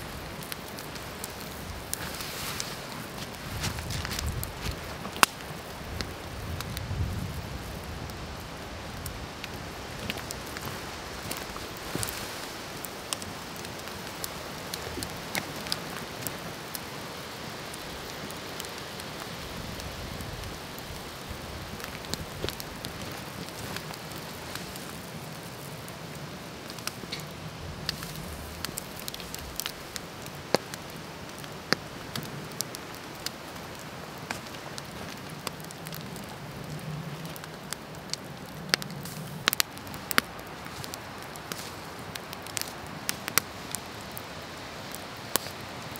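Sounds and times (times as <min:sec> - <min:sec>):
campfire crackling and popping: 0:00.0 - 0:45.9
steady hiss: 0:00.0 - 0:45.9.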